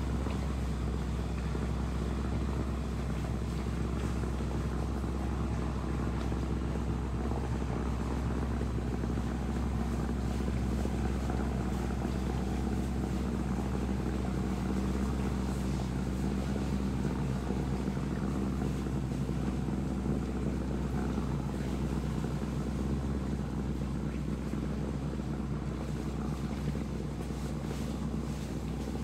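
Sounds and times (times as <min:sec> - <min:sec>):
engine running steadily: 0:00.0 - 0:29.0.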